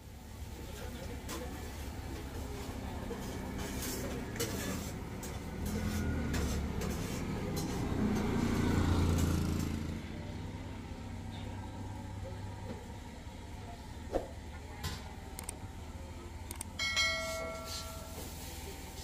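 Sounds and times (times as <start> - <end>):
vehicle driving past: 2.4 - 12.3.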